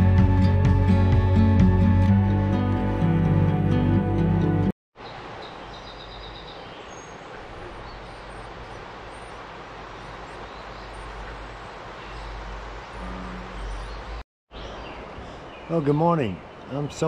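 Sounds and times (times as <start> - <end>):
bird chirps: 5.0 - 9.4, 10.0 - 16.0.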